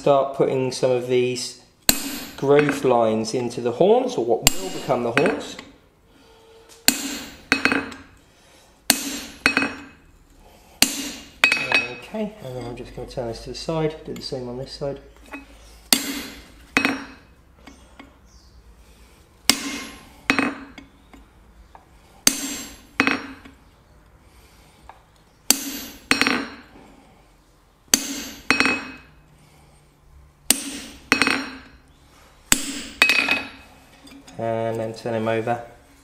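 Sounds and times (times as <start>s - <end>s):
hammer striking chisel on steel: 1.9s - 2.9s, 4.5s - 5.7s, 6.8s - 8.1s, 8.9s - 10.0s, 10.8s - 12.1s, 15.9s - 17.3s, 19.5s - 20.9s, 22.2s - 23.5s, 25.5s - 26.7s, 27.9s - 29.1s, 30.5s - 31.8s, 32.5s - 33.6s.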